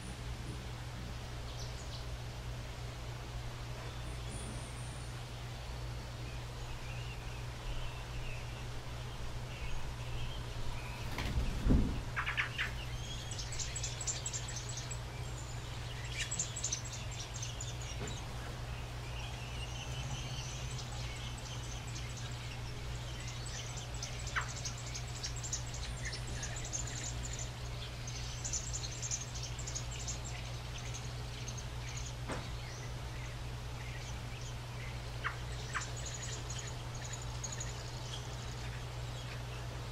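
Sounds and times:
steady low hum: 0:00.0 - 0:39.9
thump: 0:11.2 - 0:12.0
nestlings chittering: 0:12.2 - 0:39.5.

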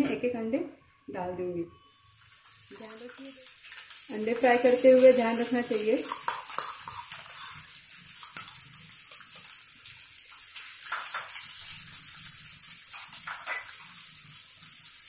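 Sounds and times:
oil sizzling: 0:01.9 - 0:15.0
spoon scraping pan: 0:03.8 - 0:08.5.

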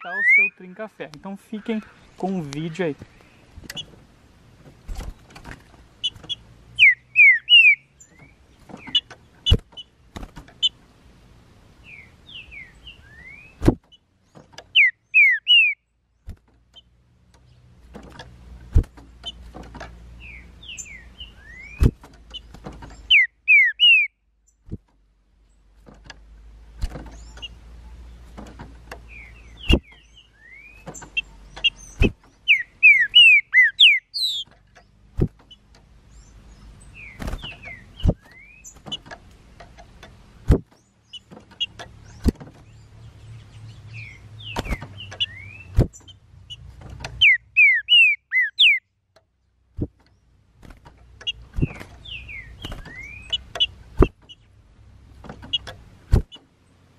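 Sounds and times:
birds singing whistled phrases: 0:00.0 - 0:03.9, 0:06.0 - 0:10.0, 0:11.8 - 0:16.0, 0:20.1 - 0:24.6, 0:29.0 - 0:39.1, 0:40.6 - 0:48.9, 0:51.2 - 0:54.5.

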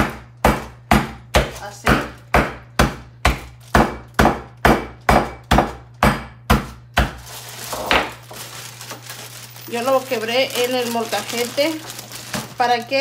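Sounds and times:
sugar cone being pounded: 0:00.0 - 0:08.4.

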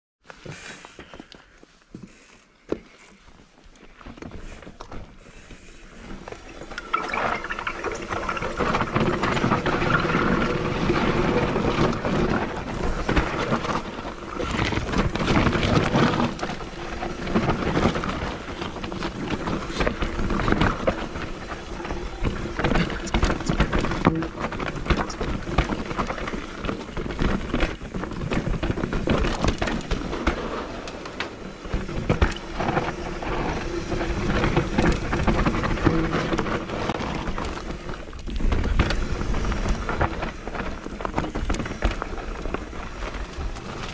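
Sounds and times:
bike rattling over bumps: 0:04.0 - 0:43.9
wind rumble on microphone: 0:06.2 - 0:43.9.

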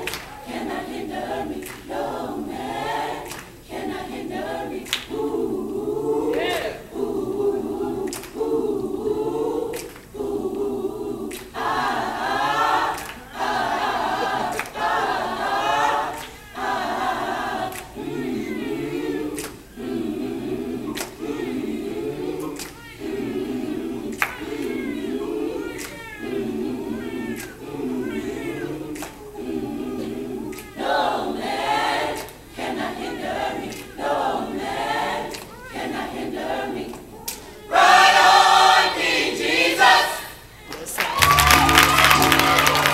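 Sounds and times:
choir singing: 0:00.0 - 0:42.9.

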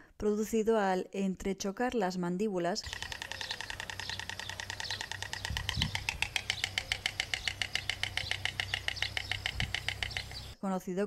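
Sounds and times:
stork bill-clattering: 0:02.8 - 0:10.6.

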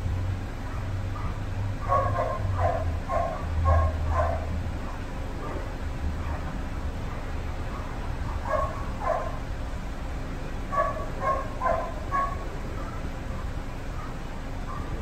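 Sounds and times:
dog yipping and barking: 0:00.6 - 0:06.4, 0:07.7 - 0:09.4, 0:10.7 - 0:13.1, 0:13.9 - 0:15.0.

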